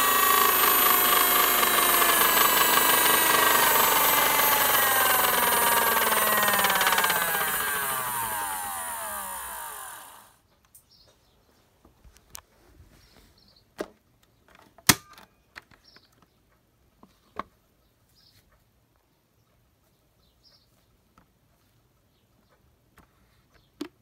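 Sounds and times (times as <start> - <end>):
plastic toy clicks and knocks: 14.5 - 16.2.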